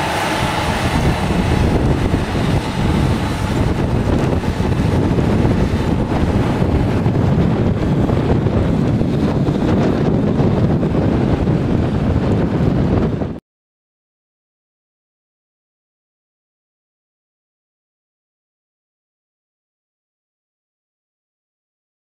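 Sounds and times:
tractor engine under load: 0.0 - 13.3
wind buffeting microphone: 0.0 - 13.4.

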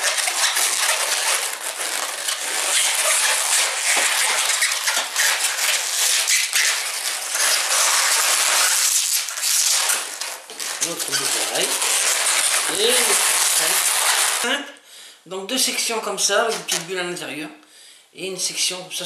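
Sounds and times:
balloon rubbing and squeaking: 0.0 - 14.6, 16.3 - 17.0.

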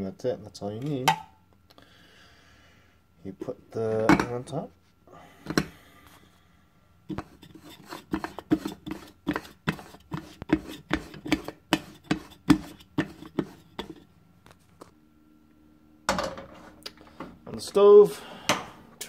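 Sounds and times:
metal pot twisting clicks and scrapes: 7.1 - 14.0.

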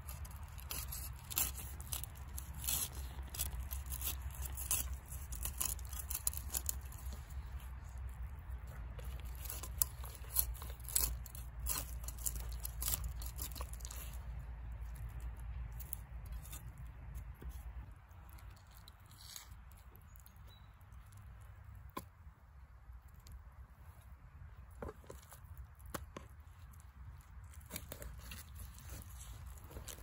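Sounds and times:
knife scraping fish skin: 0.0 - 7.4, 9.0 - 14.4.

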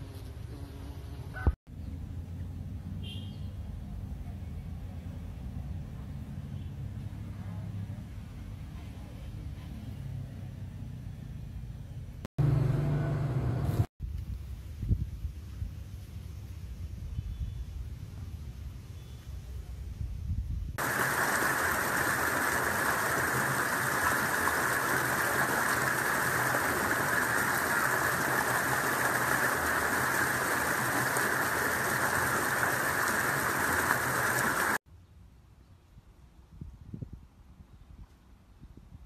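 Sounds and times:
steady rushing hiss: 20.8 - 34.8.

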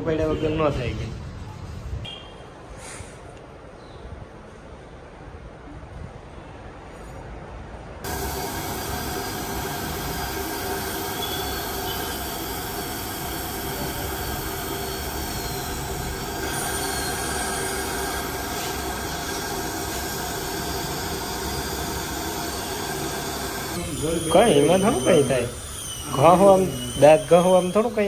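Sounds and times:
dental drill whine: 8.1 - 28.0
suction hissing: 8.1 - 28.0.

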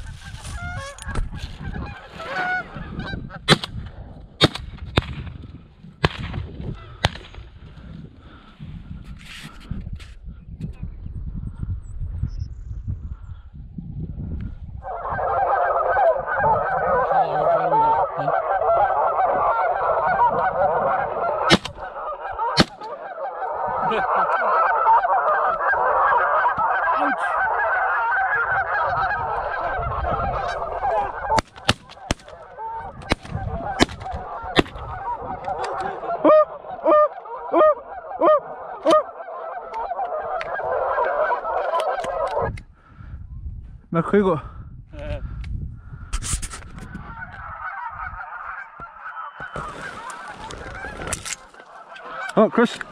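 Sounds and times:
geese honking: 0.0 - 3.5, 14.8 - 42.5, 46.8 - 52.9.

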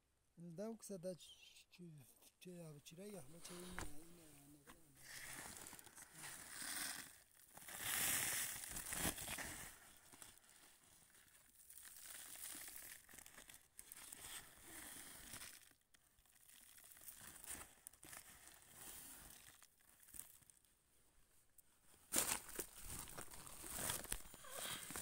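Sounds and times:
hand digging through crushed lumps: 3.4 - 10.4, 22.1 - 25.0
scratchy clicks of grains: 5.0 - 10.5, 11.1 - 20.6.

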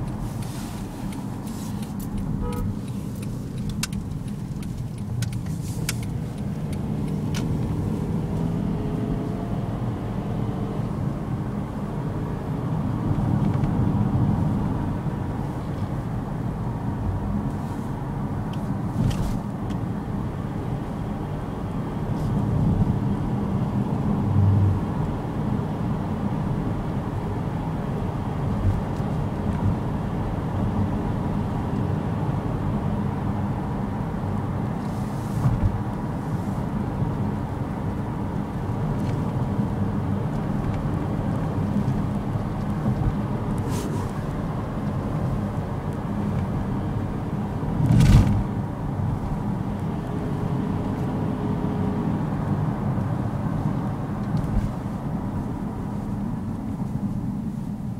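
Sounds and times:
engine and tyre rumble: 0.0 - 57.9.

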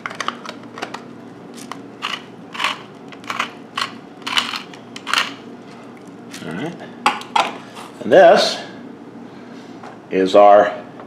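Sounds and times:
pepper mill grinding: 1.6 - 5.4.

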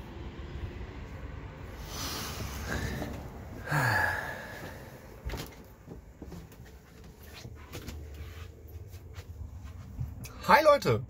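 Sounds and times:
man sighing: 1.9 - 5.2
light footsteps: 4.6 - 10.3.

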